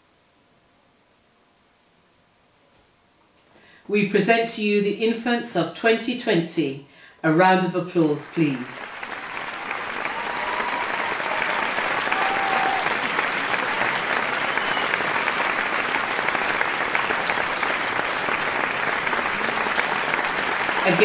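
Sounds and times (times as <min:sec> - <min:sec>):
crowd applauding: 0:08.2 - 0:21.0.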